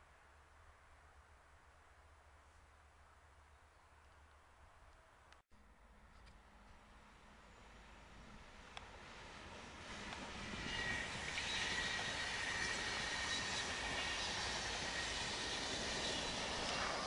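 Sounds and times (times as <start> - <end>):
train wheels rushing on rails: 7.8 - 17.0.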